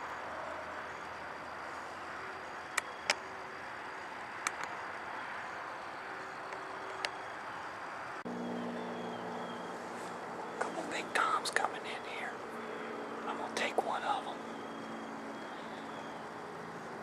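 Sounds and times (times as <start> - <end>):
outdoor background noise: 0.0 - 17.0
sharp clicks: 4.4 - 4.8.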